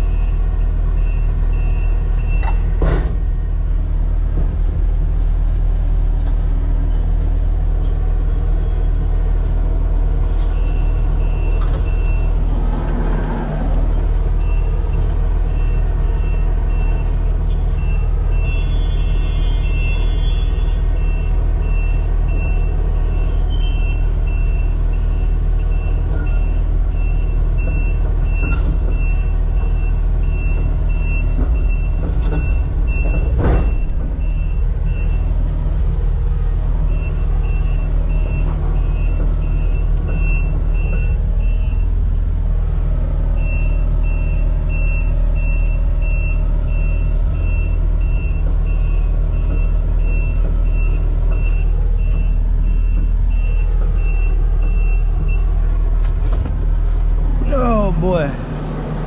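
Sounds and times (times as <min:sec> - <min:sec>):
excavator diesel engine running: 0:00.0 - 0:59.0
travel alarm beeping: 0:36.9 - 0:42.0, 0:43.4 - 0:55.5.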